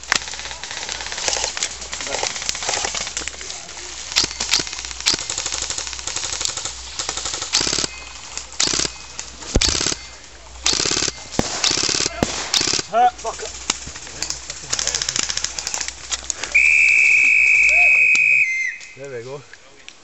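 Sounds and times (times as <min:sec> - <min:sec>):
airsoft rifles firing full auto: 0:00.0 - 0:03.2, 0:04.1 - 0:15.9.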